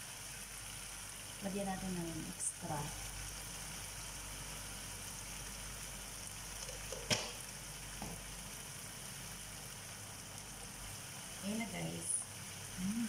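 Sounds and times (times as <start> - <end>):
sauce sizzling in a pan: 0.0 - 13.0.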